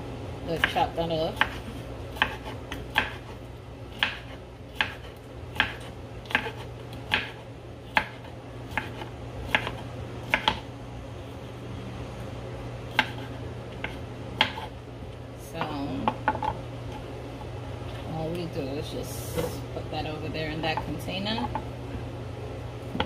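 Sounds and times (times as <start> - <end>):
knife chopping on wooden board: 0.6 - 10.7, 12.9 - 14.7.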